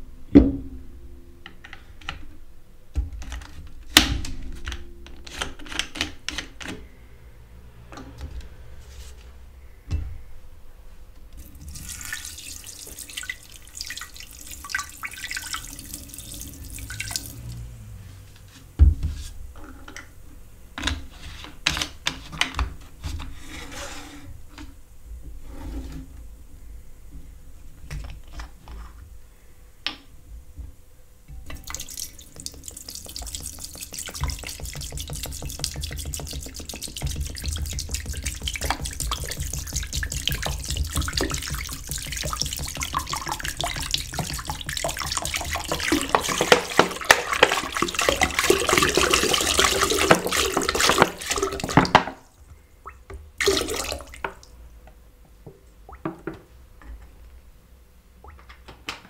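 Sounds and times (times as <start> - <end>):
plastic bottles clicking and tapping: 31.5 - 52.2
liquid pouring into glass jar: 31.6 - 51.8.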